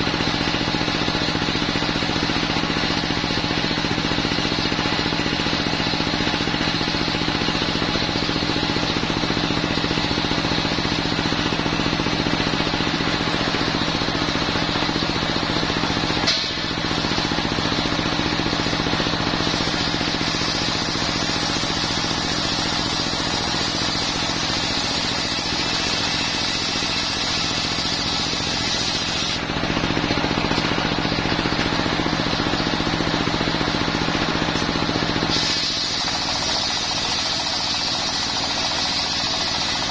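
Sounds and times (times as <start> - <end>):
diesel engine droning: 0.0 - 39.9
saw blade cutting log: 19.3 - 29.5, 34.5 - 39.9.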